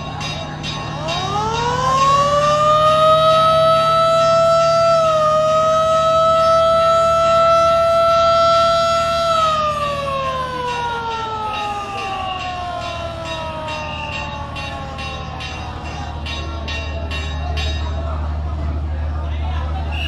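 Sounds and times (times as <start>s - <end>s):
boat siren blast: 0.0s - 16.2s.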